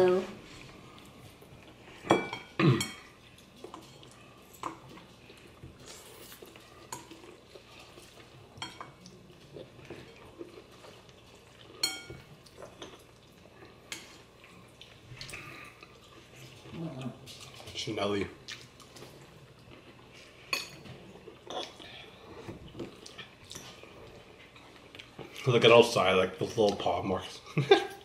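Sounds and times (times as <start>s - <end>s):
cutlery clinking against bowls: 2.0s - 5.0s, 8.0s - 9.0s, 11.5s - 13.1s, 20.5s - 21.8s.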